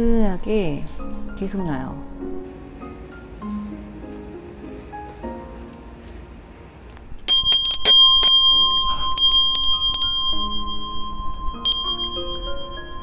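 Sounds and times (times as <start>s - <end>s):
metal wind bell ringing: 7.3s - 13.0s.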